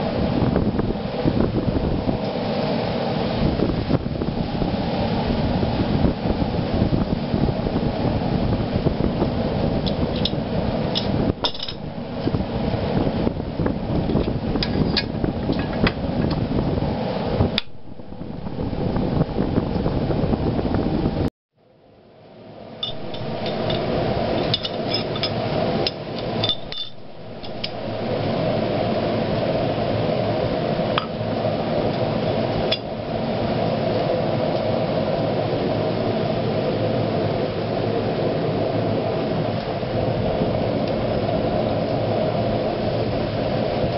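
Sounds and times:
low workshop noise: 21.6 - 33.8.

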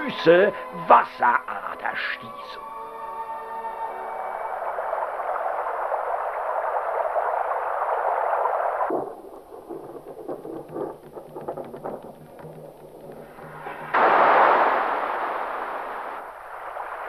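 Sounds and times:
rushing water: 2.6 - 8.9, 13.4 - 17.0
low rumble with crackles: 4.0 - 17.0.

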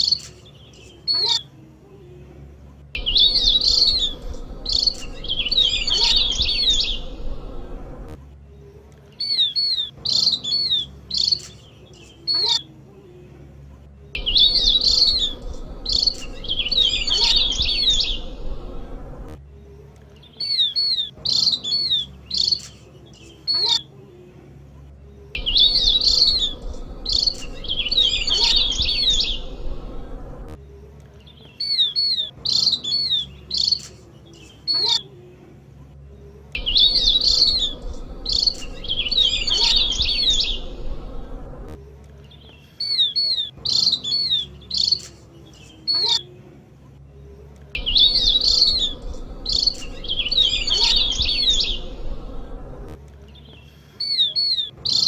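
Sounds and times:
bird chirping in bursts: 3.0 - 7.2, 9.2 - 12.6, 14.2 - 18.4, 20.3 - 23.8, 25.4 - 29.8, 31.5 - 35.0, 36.6 - 40.8, 47.8 - 52.0.

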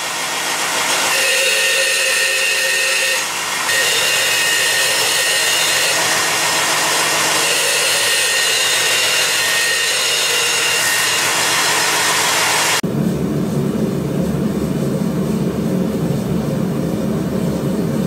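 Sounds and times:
belt grinder grinding steel: 0.0 - 12.8.

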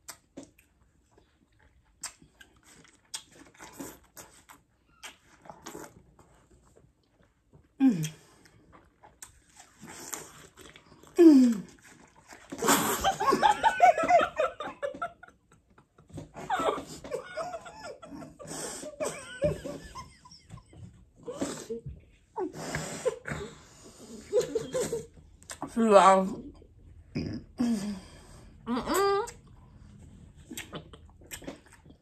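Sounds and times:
women laughing hard: 13.0 - 21.0.

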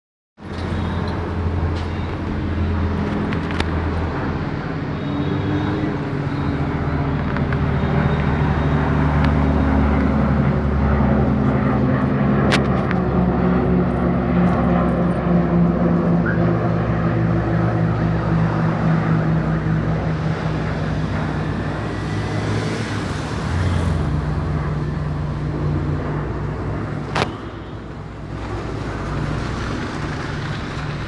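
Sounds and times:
propeller aircraft droning overhead: 0.4 - 31.0.

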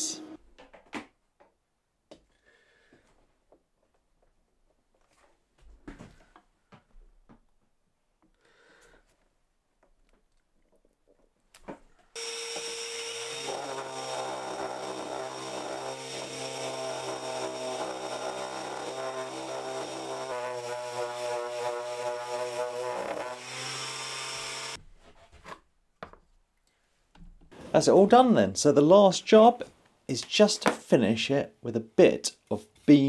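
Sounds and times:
dust extractor running: 12.2 - 24.8
orbital sander humming: 12.2 - 24.8.

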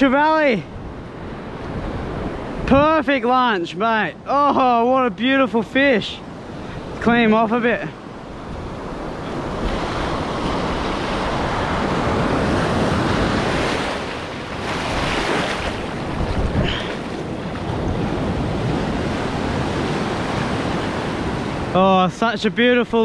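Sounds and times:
ocean surf washing on beach: 0.0 - 23.0
wind buffeting microphone: 6.3 - 21.8.

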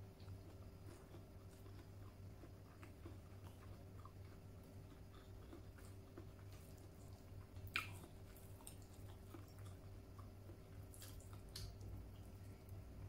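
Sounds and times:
person chewing food: 0.0 - 12.9
low steady hum: 0.0 - 13.0.

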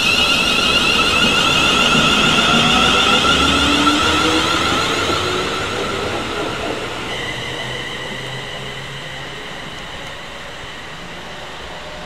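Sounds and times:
electric train rumbling: 0.0 - 12.0
train high whine: 0.0 - 12.0.

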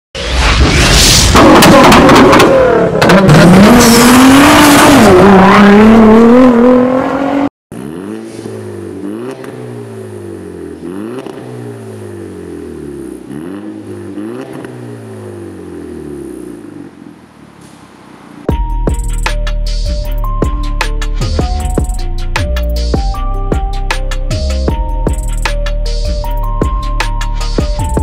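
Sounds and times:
loud engine revving: 1.3 - 16.7.

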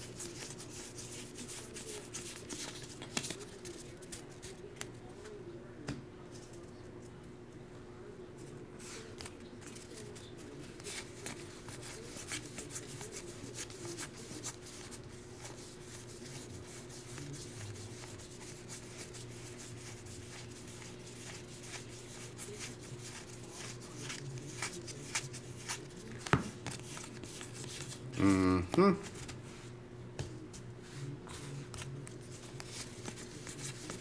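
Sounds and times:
trading cards flipped by hand: 1.4 - 4.2, 31.7 - 34.0.

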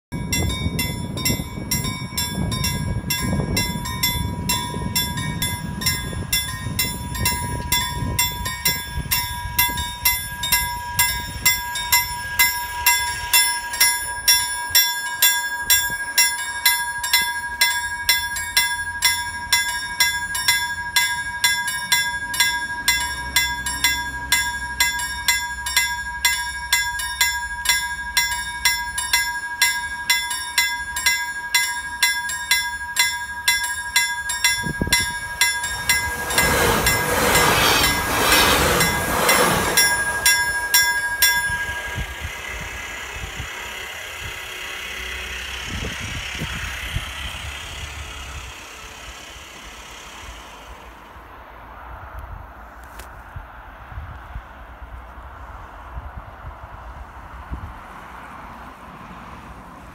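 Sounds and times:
level crossing bell ringing: 0.1 - 42.7
train rumbling past: 0.1 - 59.9.

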